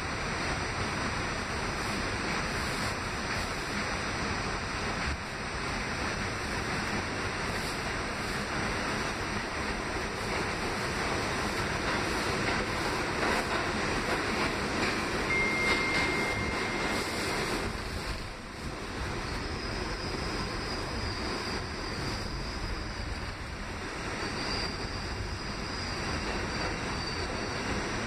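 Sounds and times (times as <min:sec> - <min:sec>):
subway wheels rumbling on rail: 0:00.0 - 0:28.0
thin high whine: 0:00.0 - 0:28.0
high-pitched squeals: 0:06.6 - 0:28.0.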